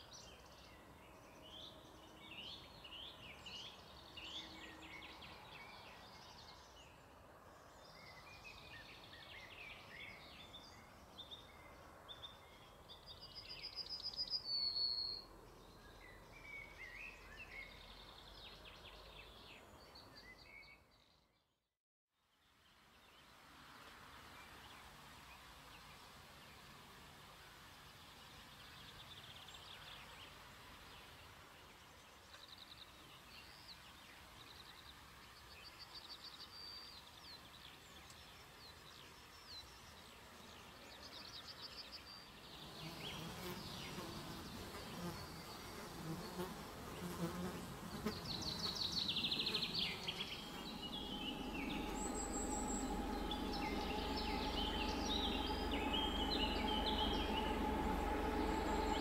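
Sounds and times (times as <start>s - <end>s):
insects buzzing: 42.6s - 59.0s
high chirps and trills: 49.1s - 59.0s
low rumble: 49.2s - 59.0s.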